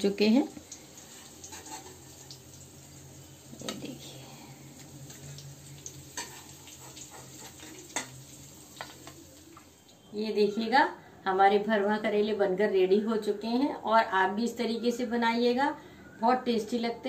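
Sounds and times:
oil sizzling: 0:00.0 - 0:10.1.

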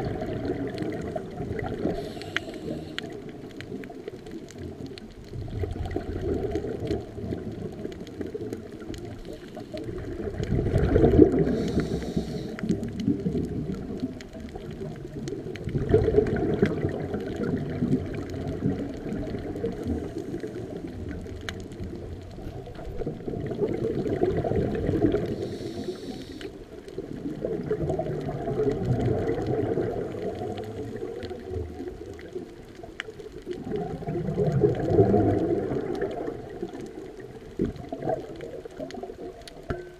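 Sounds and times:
gurgling bubbles: 0:00.0 - 0:39.9
diver breathing through regulator: 0:01.8 - 0:03.2, 0:11.4 - 0:12.8, 0:25.1 - 0:26.6.

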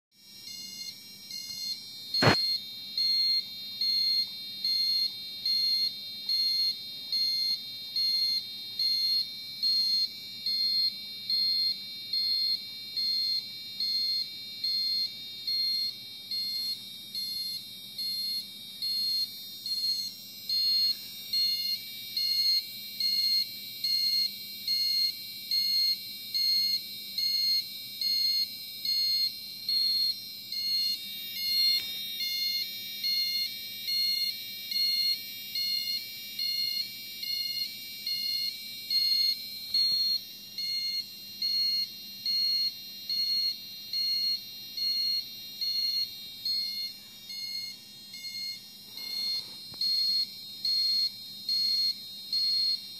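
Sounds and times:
electronic siren warbling: 0:02.2 - 0:03.2.

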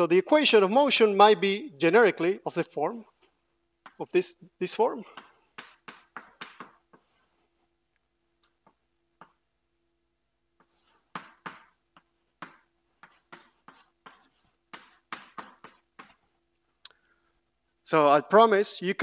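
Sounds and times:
chalk strokes on blackboard: 0:05.0 - 0:07.7, 0:10.6 - 0:16.4
chalk tapping on blackboard: 0:05.1 - 0:07.5, 0:10.6 - 0:16.3.

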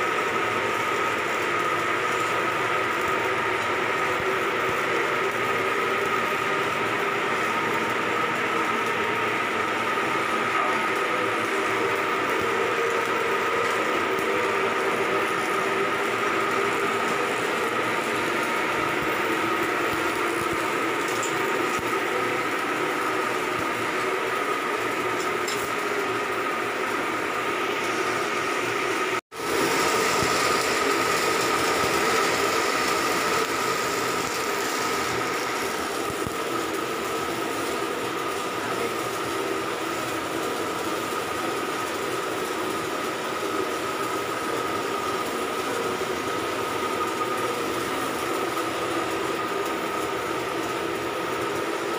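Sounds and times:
engine room machinery din: 0:00.0 - 0:51.9
high machine whine: 0:00.0 - 0:51.9.

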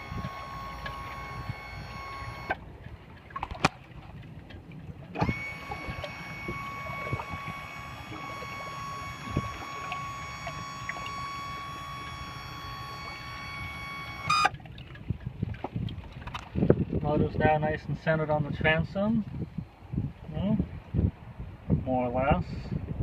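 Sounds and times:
small electric motor whining: 0:00.0 - 0:02.6, 0:05.1 - 0:14.5
low wash of water: 0:00.0 - 0:17.1.

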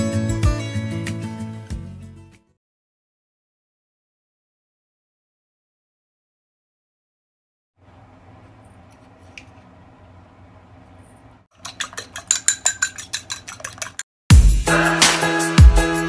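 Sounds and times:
spoon stirring in steel bowl: 0:11.6 - 0:14.0
utensil clinking on ceramic bowl: 0:11.6 - 0:14.0.

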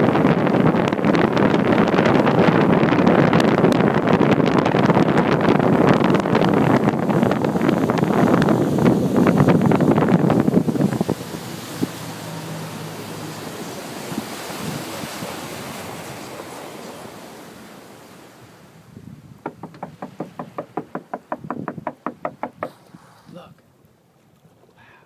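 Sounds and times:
wind buffeting microphone: 0:00.0 - 0:23.4
sharp regular knocks: 0:19.4 - 0:22.8.

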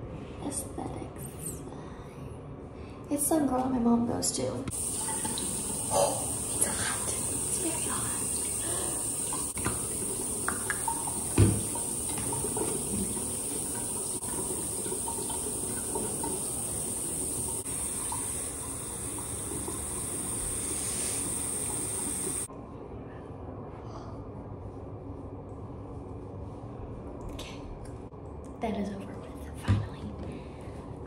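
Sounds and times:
faucet running into basin: 0:04.7 - 0:22.5
thump: 0:11.4 - 0:11.6.

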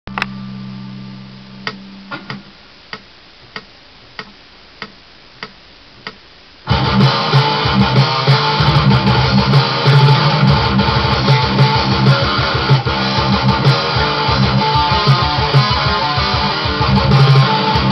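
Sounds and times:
distorted electric guitar riff: 0:06.6 - 0:17.9.

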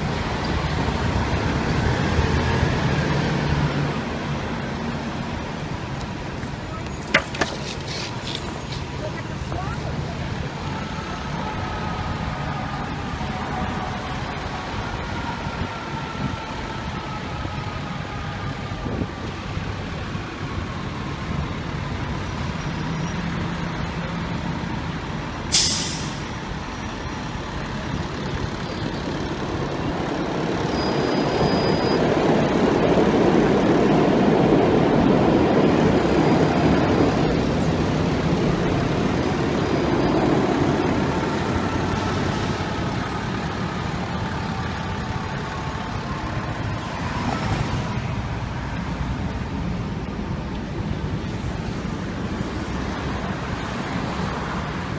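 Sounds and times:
city traffic noise: 0:00.0 - 0:54.9
fire truck diesel engine: 0:00.0 - 0:54.9
air brake hiss: 0:25.5 - 0:26.4.

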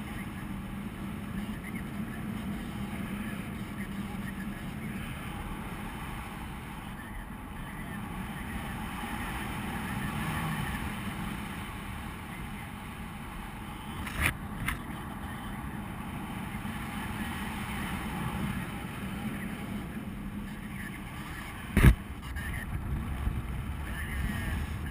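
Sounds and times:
wind rushing over microphone: 0:21.4 - 0:24.9.

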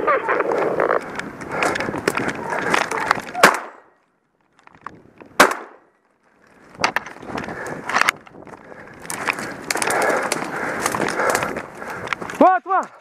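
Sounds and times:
twigs scraping and snapping: 0:00.0 - 0:13.0
sharp crack: 0:00.4 - 0:04.0, 0:05.2 - 0:05.9.

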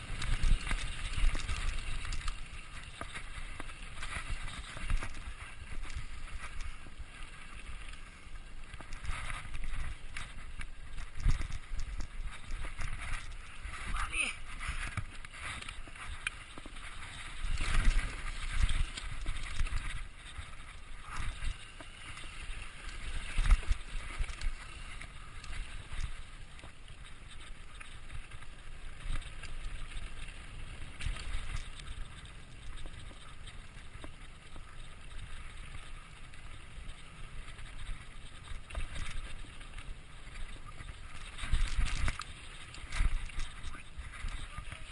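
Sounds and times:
tyre and wind rush: 0:00.0 - 0:26.4.

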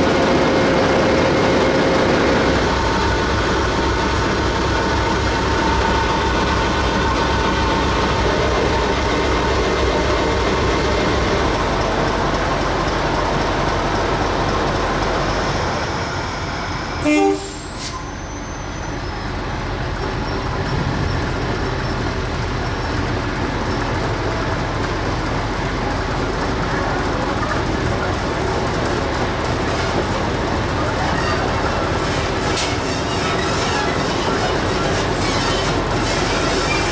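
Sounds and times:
locomotive diesel engine running: 0:00.0 - 0:36.9
locomotive horn toot: 0:17.0 - 0:18.0.

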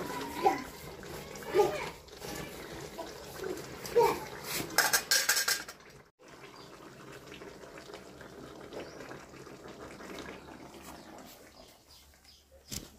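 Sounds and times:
curry sizzling and bubbling: 0:00.0 - 0:12.4.

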